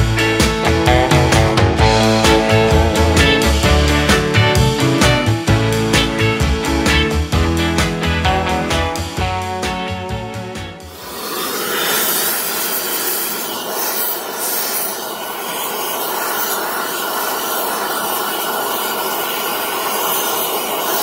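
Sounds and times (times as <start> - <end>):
music track: 0.0 - 11.0
torch flame hissing: 10.9 - 21.0.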